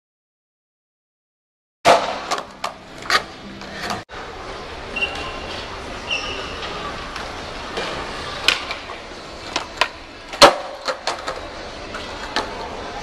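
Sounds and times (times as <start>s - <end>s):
skateboard clacks: 7.1s - 12.8s.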